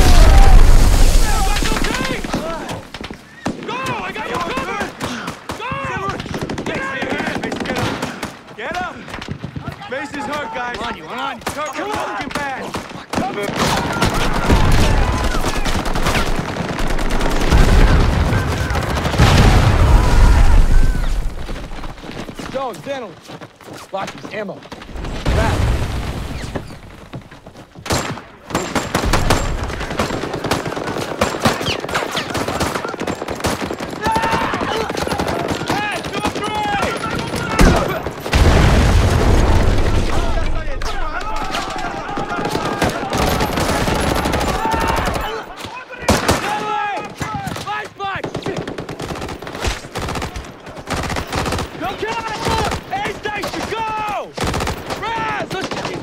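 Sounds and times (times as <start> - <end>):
people shouting: 0.0 - 2.8, 3.6 - 6.2, 13.2 - 16.0, 17.6 - 21.4, 32.3 - 38.1, 40.1 - 48.2, 51.8 - 54.3
rifle and machine-gun fire: 4.2 - 8.4, 13.0 - 22.6, 27.9 - 46.8, 47.4 - 56.0
automatic gunfire: 41.9 - 45.4, 48.2 - 53.7.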